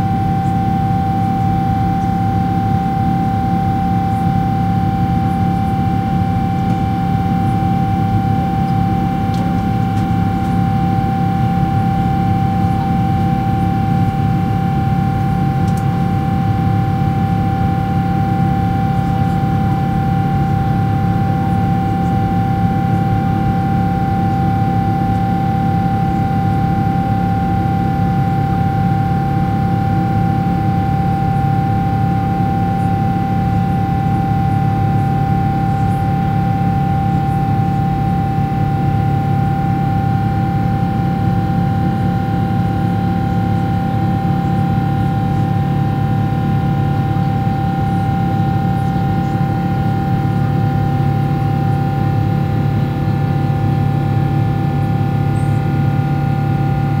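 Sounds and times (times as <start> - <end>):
buzzsaw drone of fan: 0.0 - 57.0
jet engine rumble in cabin: 0.0 - 57.0.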